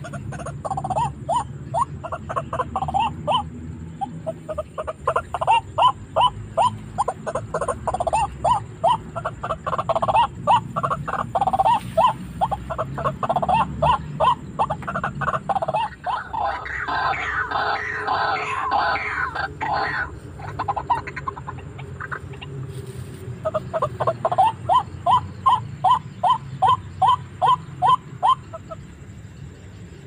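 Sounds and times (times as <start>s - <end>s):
bird repeated short calls: 0.0s - 22.5s
harsh bird chattering: 0.0s - 29.5s.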